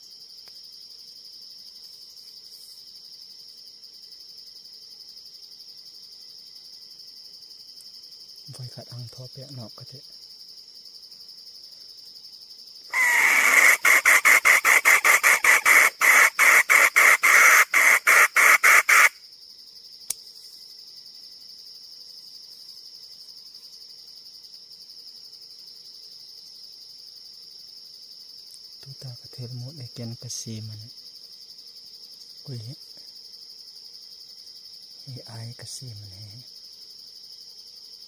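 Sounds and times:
high insect drone: 0.0 - 38.0
hen cackling: 12.9 - 19.2.

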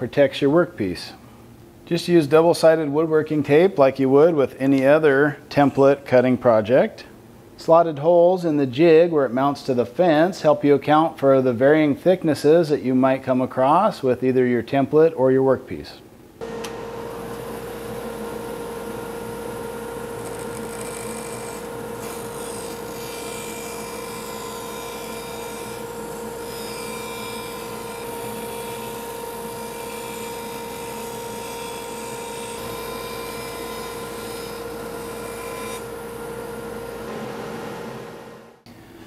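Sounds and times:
saw blade cutting board: 16.4 - 37.9
bandsaw humming: 16.4 - 38.5.

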